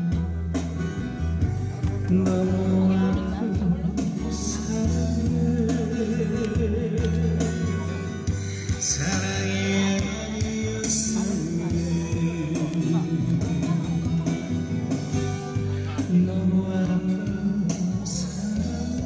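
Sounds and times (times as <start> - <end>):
person singing: 0.0 - 19.0
steady bass line: 0.0 - 19.0.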